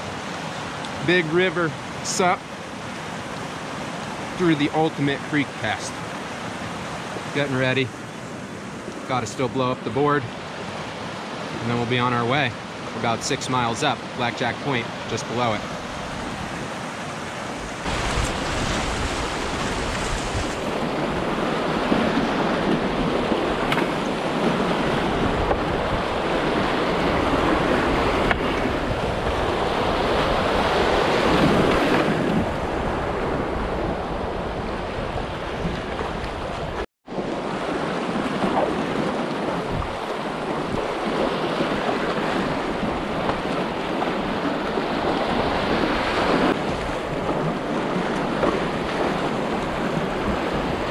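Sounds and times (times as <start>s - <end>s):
creek rushing over rocks: 0.0s - 33.1s.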